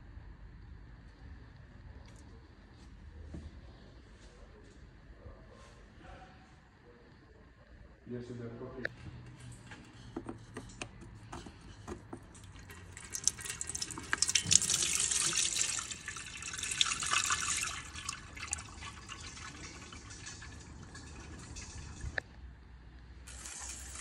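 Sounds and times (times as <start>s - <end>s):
oil pouring into container: 12.2s - 22.2s, 23.3s - 24.0s.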